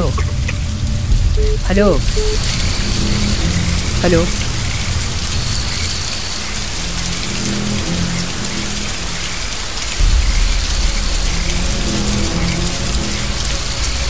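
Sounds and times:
deep low rumble: 0.0s - 6.0s
heavy rain: 0.0s - 14.0s
low sustained music notes: 0.0s - 14.0s.

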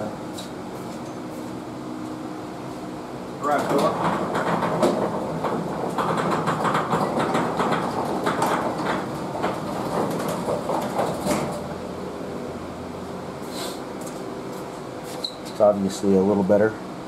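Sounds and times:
garage door rolling down: 3.4s - 11.8s.

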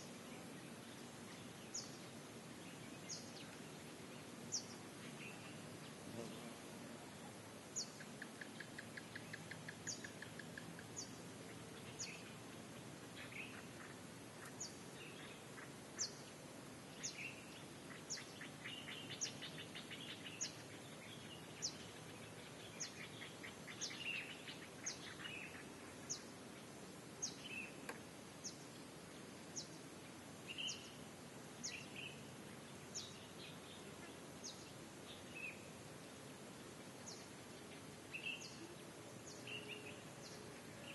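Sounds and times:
background hiss: 0.0s - 40.9s
bird chirps: 17.0s - 26.3s, 30.5s - 31.0s, 37.0s - 40.9s.

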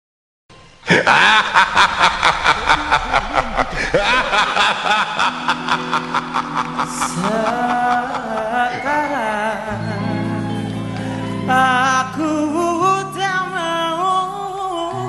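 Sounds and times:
laughter in rapid bursts: 0.9s - 8.7s.

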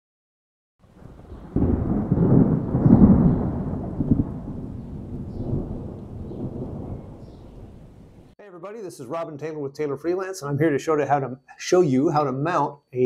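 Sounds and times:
thunder rumble and crack: 0.8s - 8.4s.

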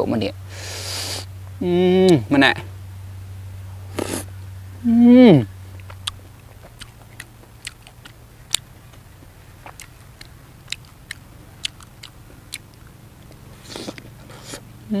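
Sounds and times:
low steady hum: 0.0s - 15.0s
person chewing crunchy food: 3.9s - 4.3s, 5.7s - 14.7s.

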